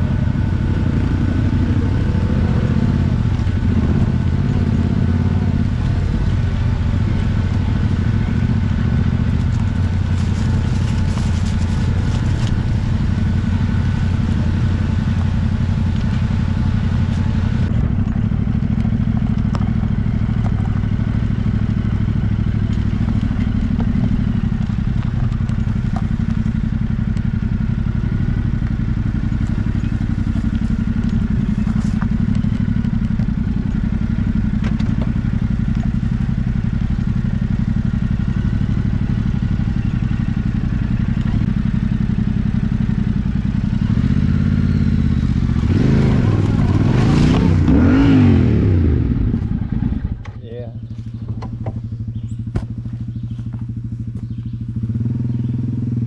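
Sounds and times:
motorcycle engine running: 0.0s - 56.0s
bike knocking over ground: 51.0s - 54.3s.

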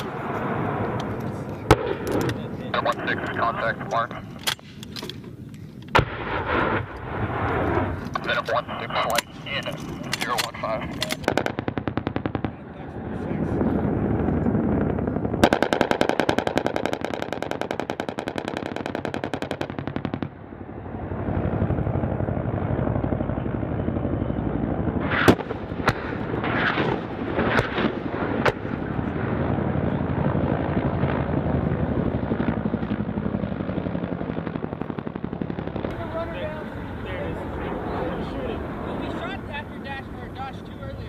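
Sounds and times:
steady helicopter rumble: 0.0s - 41.0s
sharp cracks: 4.1s - 12.6s, 15.0s - 20.4s, 25.0s - 29.2s
rotary gun firing burst: 10.6s - 12.5s, 13.9s - 20.5s, 24.7s - 35.9s.

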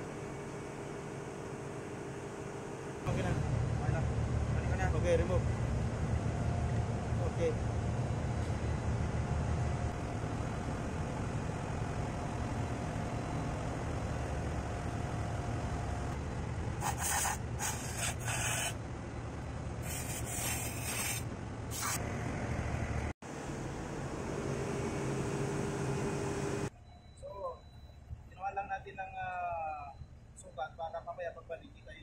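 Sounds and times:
low machinery hum: 0.0s - 32.0s
compressed air blasts: 16.8s - 18.8s, 19.8s - 22.0s.

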